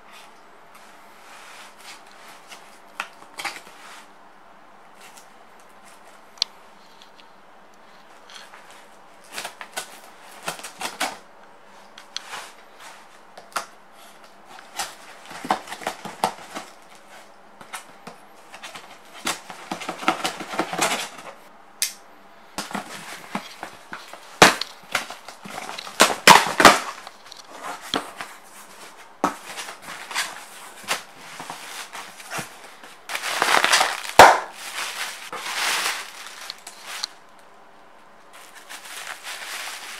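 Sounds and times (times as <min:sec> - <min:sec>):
plastic air pillows crinkling: 0:22.6 - 0:37.5, 0:38.2 - 0:39.9.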